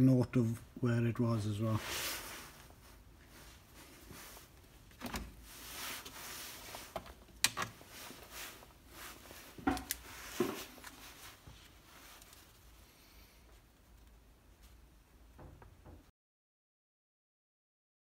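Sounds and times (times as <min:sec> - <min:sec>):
notebook pages rustling: 0:01.8 - 0:12.7.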